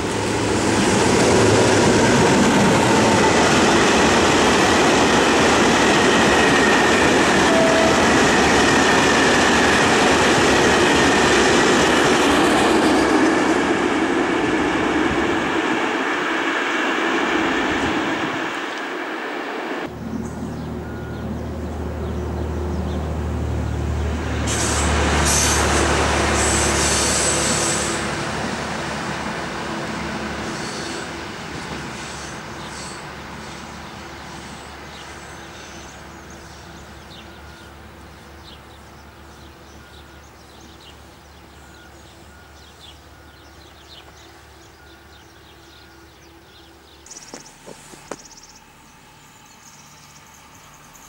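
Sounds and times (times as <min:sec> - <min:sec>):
diesel railcar engine humming: 0:00.0 - 0:51.0
high-pitched metallic squeal: 0:06.4 - 0:09.9, 0:24.4 - 0:28.1, 0:30.4 - 0:31.2
songbirds chirping: 0:19.9 - 0:24.4, 0:32.5 - 0:51.0.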